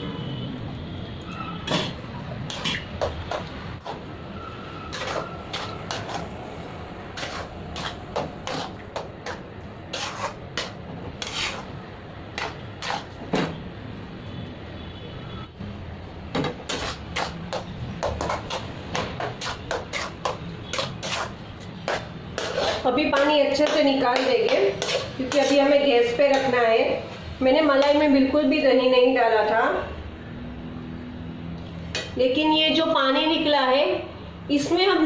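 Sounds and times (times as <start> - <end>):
metal spoon scraping steel bowl: 1.7 - 3.0, 4.8 - 6.3, 7.2 - 11.7, 12.4 - 13.2, 16.6 - 26.6.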